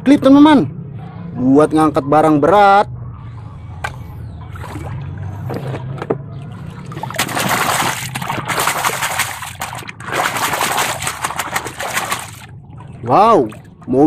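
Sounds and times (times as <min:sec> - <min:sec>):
toy truck splashing in muddy water: 0:07.0 - 0:12.5.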